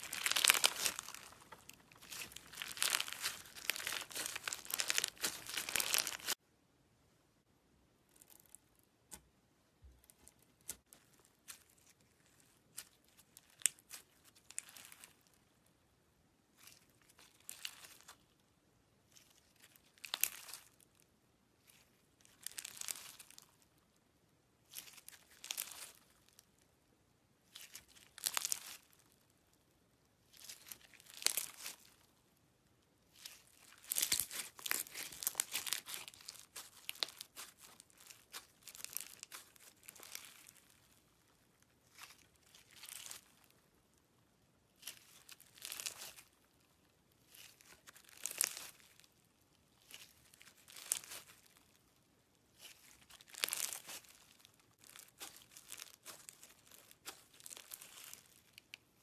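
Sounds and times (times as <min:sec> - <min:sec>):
beads clicking in squeezed slime: 0:00.0 - 0:06.4.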